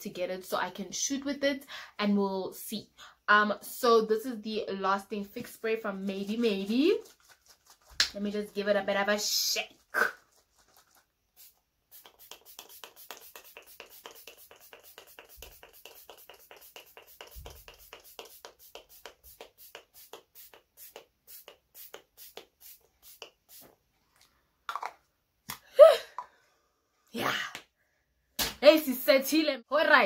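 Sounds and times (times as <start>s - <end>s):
spray bottle spritzing: 9.8s - 23.8s.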